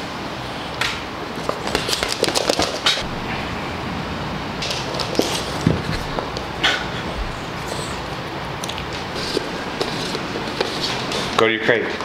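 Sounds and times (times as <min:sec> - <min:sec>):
claws clicking on hardwood floor: 0:01.4 - 0:03.0.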